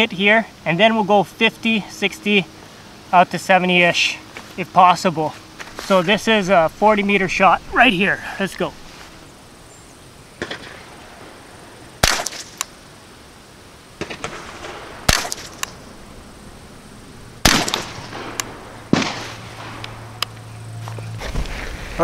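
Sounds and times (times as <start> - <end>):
rifle shots: 10.4 - 10.9, 12.0 - 12.6, 14.0 - 15.8, 17.4 - 20.1.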